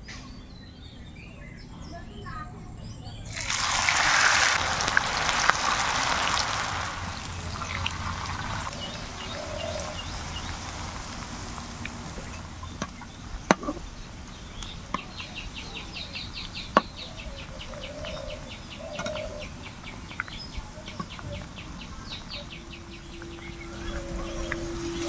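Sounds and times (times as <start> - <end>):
potatoes sizzling in hot oil: 3.3 - 15.5.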